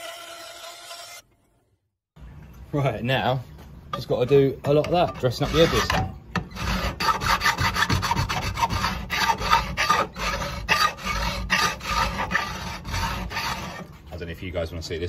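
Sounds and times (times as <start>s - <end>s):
file rasping on metal: 0.0s - 1.2s, 4.3s - 14.0s.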